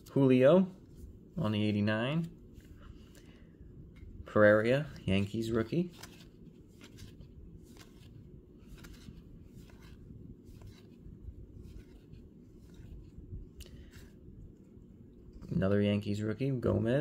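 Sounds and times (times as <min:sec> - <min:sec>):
cards sliding against each other: 0:05.8 - 0:14.2.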